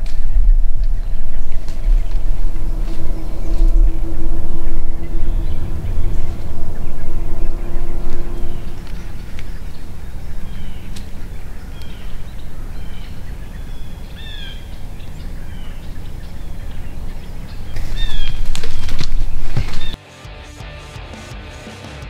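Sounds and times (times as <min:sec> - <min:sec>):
songbird chirping: 0:00.0 - 0:20.0
wind buffeting microphone: 0:00.0 - 0:20.0.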